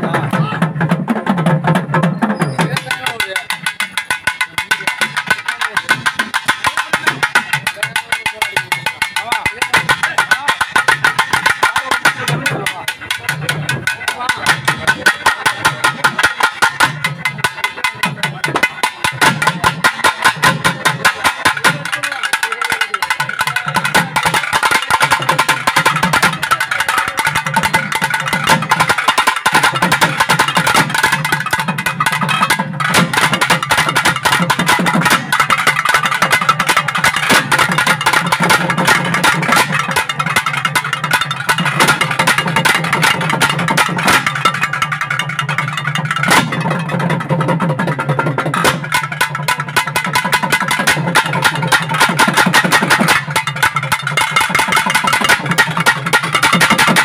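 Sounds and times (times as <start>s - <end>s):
fast drumming: 0.0s - 57.0s
wavering reed melody: 22.5s - 52.6s.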